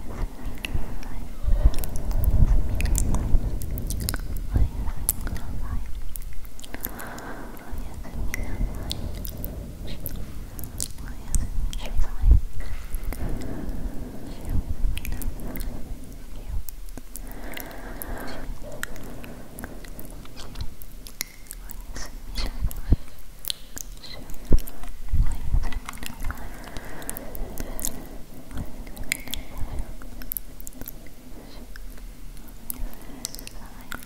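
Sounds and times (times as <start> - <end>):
heavy low thumps: 0.0 - 6.6, 7.7 - 16.9
wet mouth clicks and lip smacks: 0.4 - 15.8, 16.4 - 34.0.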